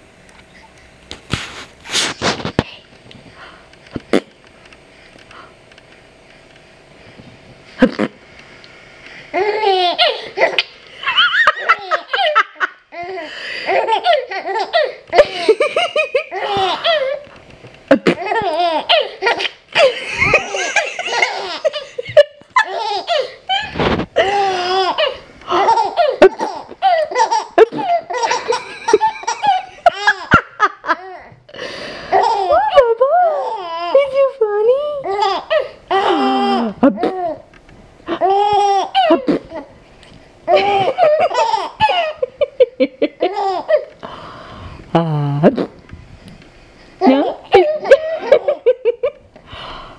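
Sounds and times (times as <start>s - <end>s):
baby laughing: 9.4s - 17.2s, 17.9s - 31.3s, 32.1s - 34.2s, 34.9s - 37.5s, 38.1s - 39.7s, 40.5s - 43.9s, 47.0s - 49.2s.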